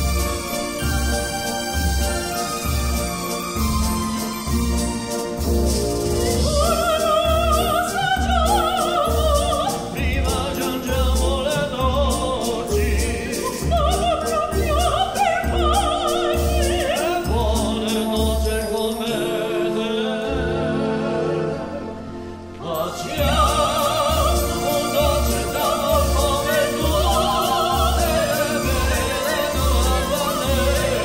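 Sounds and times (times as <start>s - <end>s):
man singing opera: 6.4s - 31.0s
soprano singing opera: 6.4s - 31.0s.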